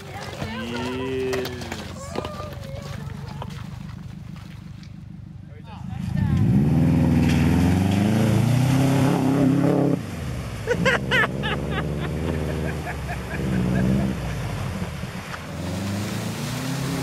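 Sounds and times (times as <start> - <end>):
car engine pulling hard: 0.0 - 17.0
water splashing: 6.9 - 17.0.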